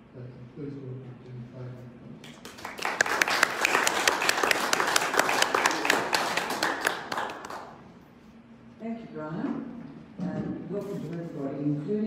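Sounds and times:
audience applauding: 0:02.4 - 0:07.8.

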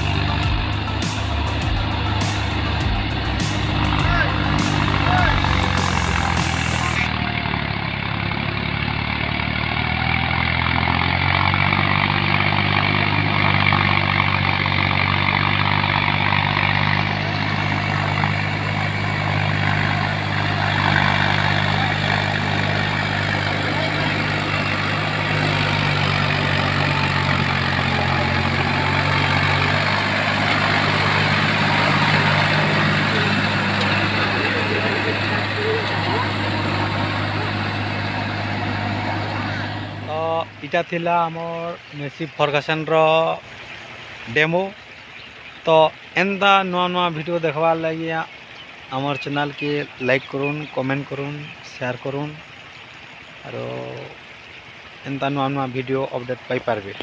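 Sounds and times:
tractor diesel engine running: 0:00.0 - 0:41.2.

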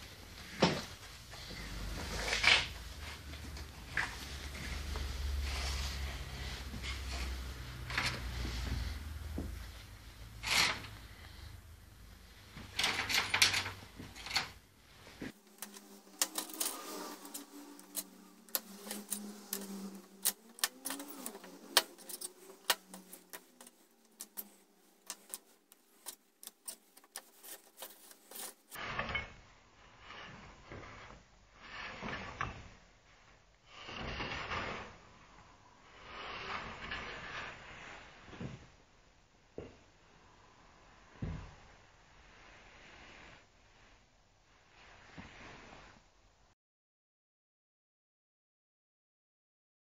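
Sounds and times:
hands rubbing and scraping: 0:14.0 - 0:28.8
pens clicking against plastic tubes: 0:15.4 - 0:28.8.

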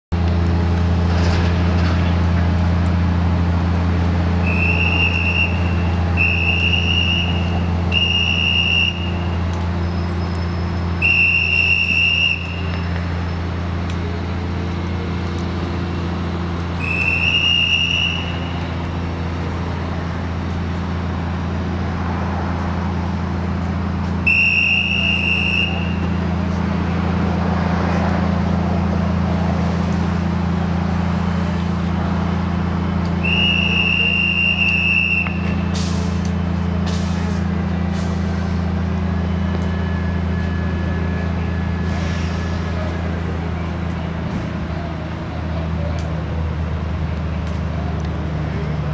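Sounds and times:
crane diesel engine droning: 0:00.1 - 0:48.9
high whistle-like tones: 0:04.4 - 0:13.5, 0:16.8 - 0:18.8, 0:24.2 - 0:26.2, 0:33.2 - 0:35.8.

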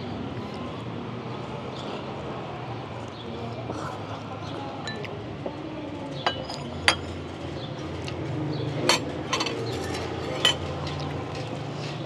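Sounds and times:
utensils clinking against bowls: 0:04.8 - 0:05.1, 0:06.2 - 0:07.4, 0:08.1 - 0:12.0.

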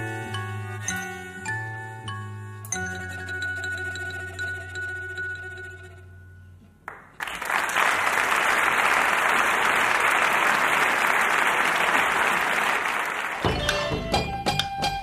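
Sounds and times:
music: 0:00.0 - 0:07.2, 0:13.4 - 0:15.0
audience applause: 0:06.9 - 0:13.7.

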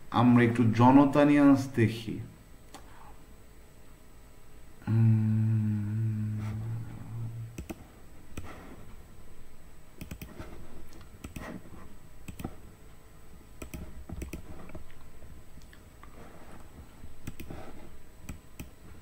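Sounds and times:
low steady hum: 0:00.0 - 0:19.0
computer mouse clicks: 0:07.6 - 0:08.6, 0:10.0 - 0:11.6, 0:12.2 - 0:12.6, 0:13.6 - 0:15.0, 0:17.2 - 0:17.6, 0:18.2 - 0:19.0.

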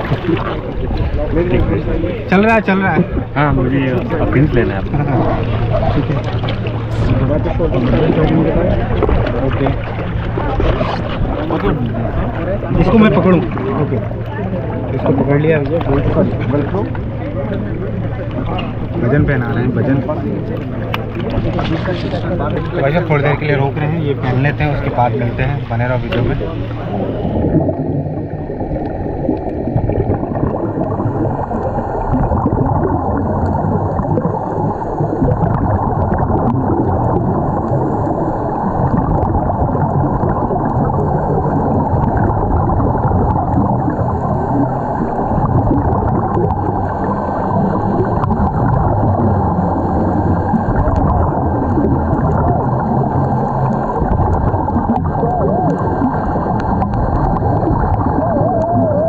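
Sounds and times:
muffled underwater rush: 0:00.0 - 0:59.0.

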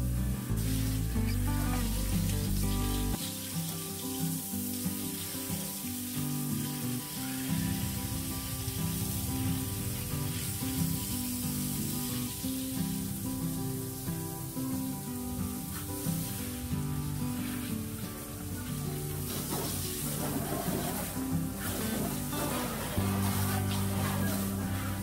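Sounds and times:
background music: 0:00.0 - 0:25.0
water spraying from hose: 0:00.0 - 0:25.0.

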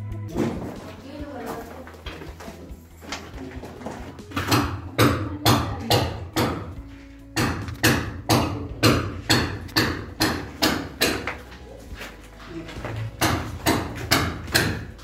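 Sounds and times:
sharp knocks: 0:07.4 - 0:11.4, 0:13.2 - 0:15.0.

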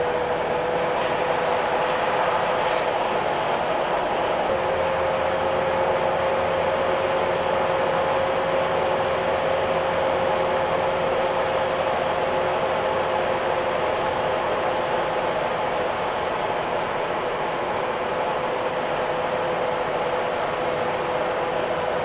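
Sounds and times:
vehicle road and engine noise: 0:00.0 - 0:06.4
steady whine: 0:00.0 - 0:11.4.

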